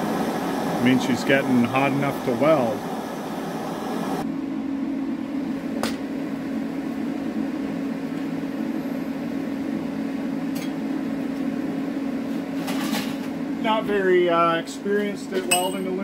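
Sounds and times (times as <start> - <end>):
welding machine humming: 0.0 - 4.2.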